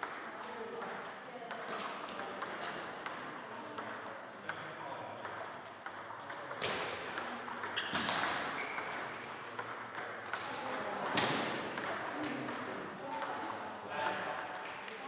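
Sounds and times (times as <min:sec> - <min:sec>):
table tennis balls clicking: 0:00.0 - 0:15.0.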